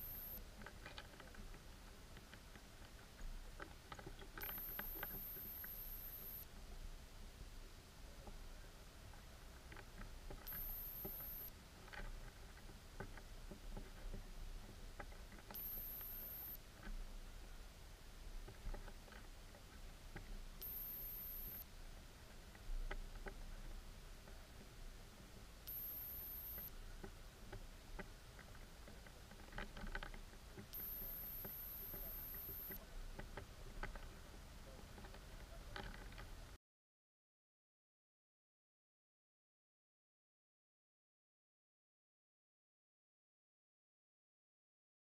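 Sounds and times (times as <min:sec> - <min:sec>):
thin high-pitched whine: 0:00.0 - 0:00.4, 0:04.4 - 0:06.5, 0:10.4 - 0:11.6, 0:15.5 - 0:16.6, 0:20.6 - 0:21.7, 0:25.7 - 0:26.8, 0:30.7 - 0:32.8
faint underwater clicks: 0:00.0 - 0:06.4, 0:09.1 - 0:17.0, 0:18.5 - 0:21.6, 0:25.7 - 0:36.4.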